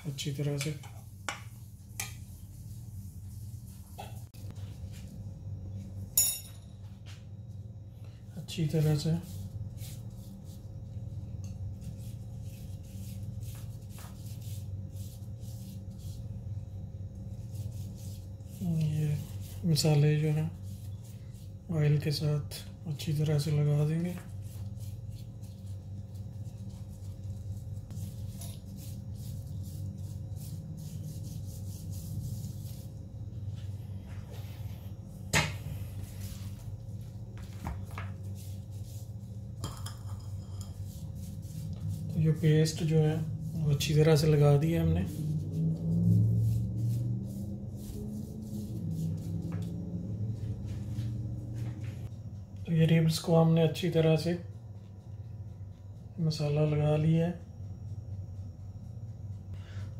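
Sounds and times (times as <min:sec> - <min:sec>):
steady low hum: 0:00.0 - 0:59.9
gloved hand rubbing meat: 0:08.9 - 0:11.1, 0:11.7 - 0:21.7, 0:23.4 - 0:33.7, 0:36.0 - 0:39.5, 0:40.8 - 0:49.8.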